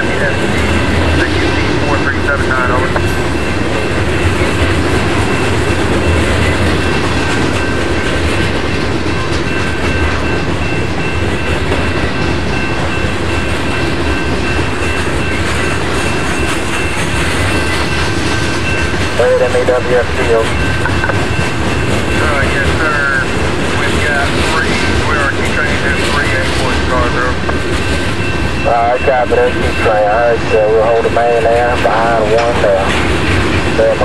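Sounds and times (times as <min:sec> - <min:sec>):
train wheels on rail: 0:00.0 - 0:34.0
clacking over rail joints: 0:31.9 - 0:34.0.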